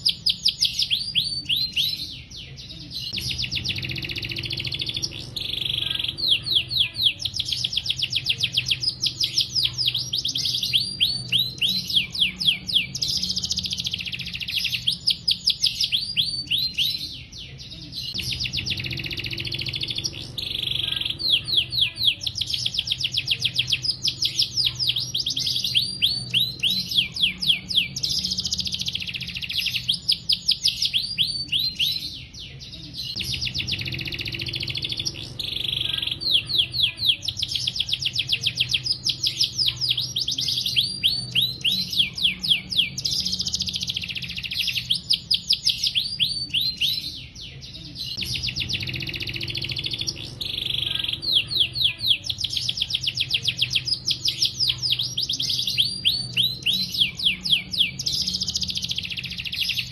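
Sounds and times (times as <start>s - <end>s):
canary singing trills: 0.0s - 59.9s
steady low hum: 2.9s - 14.8s, 17.8s - 29.7s, 32.8s - 44.6s, 48.1s - 59.5s.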